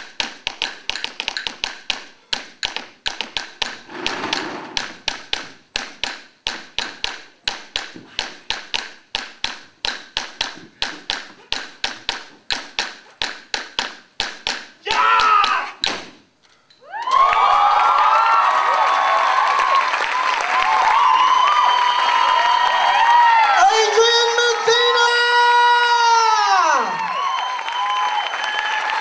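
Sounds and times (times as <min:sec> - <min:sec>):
loud shout: 0:14.8 - 0:15.8, 0:16.9 - 0:29.0.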